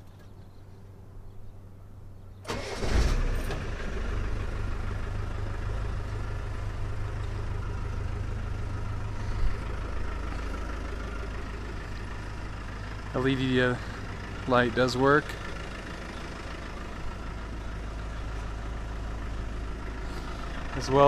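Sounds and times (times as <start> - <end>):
engine cranking and idling: 2.4 - 21.0.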